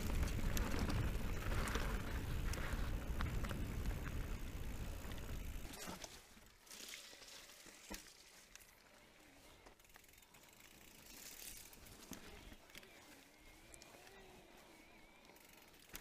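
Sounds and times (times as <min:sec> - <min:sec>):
sharp clicks from bike: 0:00.0 - 0:08.8, 0:09.6 - 0:12.9, 0:15.2 - 0:16.0
bike freehub ratchet ticking: 0:09.8 - 0:11.8.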